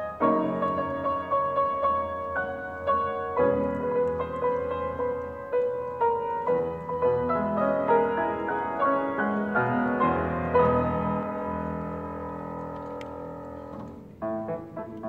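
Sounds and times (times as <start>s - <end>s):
grand piano playing: 0.0s - 15.0s.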